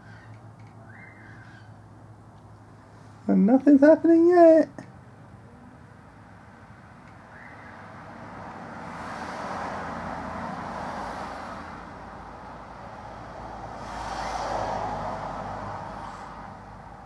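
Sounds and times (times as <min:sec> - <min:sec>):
vehicles passing on road: 0:00.0 - 0:17.0.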